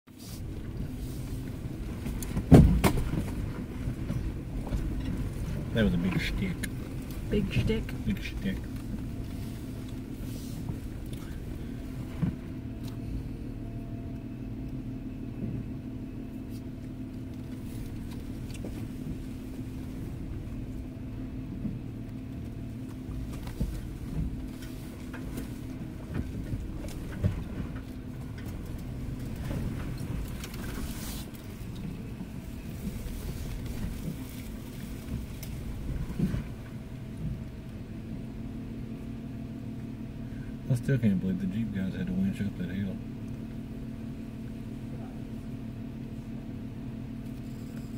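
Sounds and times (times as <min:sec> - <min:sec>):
off-road vehicle engine running: 0:00.1 - 0:47.9
sharp knocks and clunks: 0:02.2 - 0:03.5.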